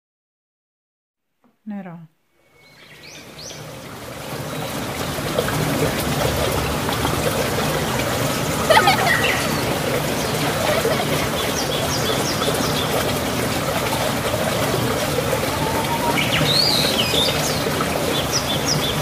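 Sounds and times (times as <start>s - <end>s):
bird chirps: 15.3s - 19.0s.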